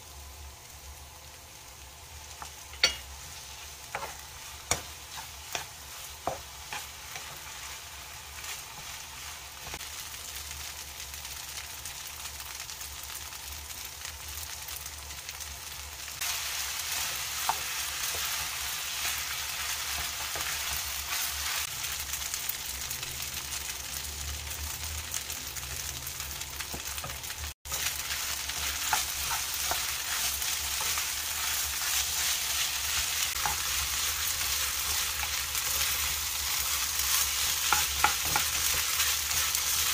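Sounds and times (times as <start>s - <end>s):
rice sizzling in a pan: 0.0s - 39.9s
spatula scraping and tapping pan: 2.3s - 7.8s, 26.7s - 39.9s.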